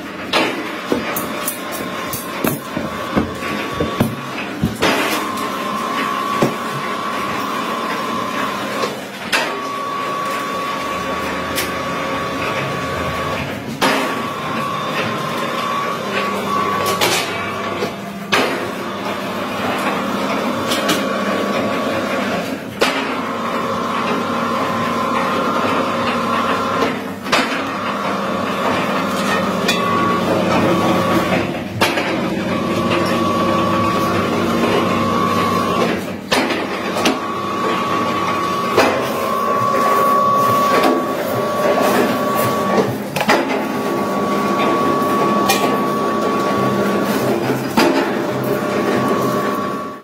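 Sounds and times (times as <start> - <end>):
sharp knocks of rollers: 0.0 - 5.4
candy machine motor whine: 0.0 - 50.0.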